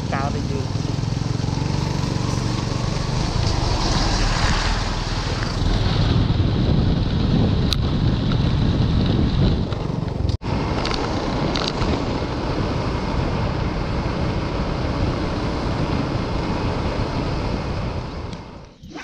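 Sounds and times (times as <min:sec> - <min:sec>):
motor scooter engine running: 0:00.0 - 0:03.9
wind rushing over microphone: 0:00.9 - 0:19.0.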